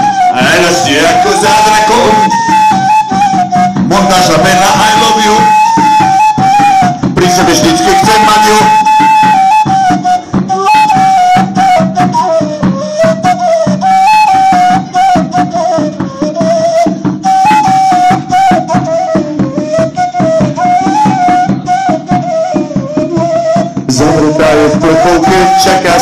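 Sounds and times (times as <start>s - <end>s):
fast rattling percussion: 0.0s - 26.0s
plastic pipe flute melody: 0.0s - 26.0s.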